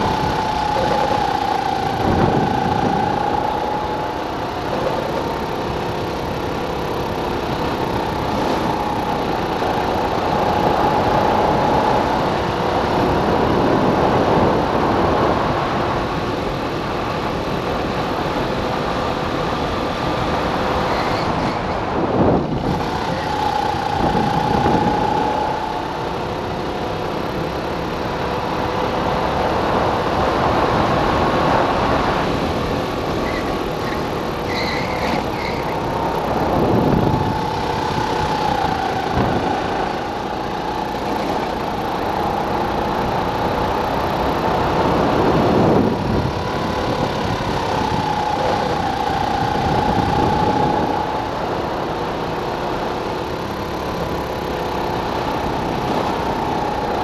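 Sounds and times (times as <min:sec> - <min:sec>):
rushing noise: 0:00.0 - 0:16.3, 0:29.5 - 0:57.0
go-kart engine running hard: 0:00.0 - 0:57.0.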